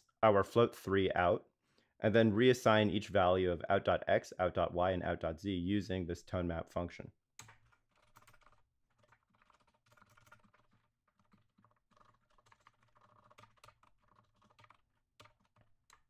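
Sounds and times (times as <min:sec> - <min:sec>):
keyboard typing: 0:07.4 - 0:16.0.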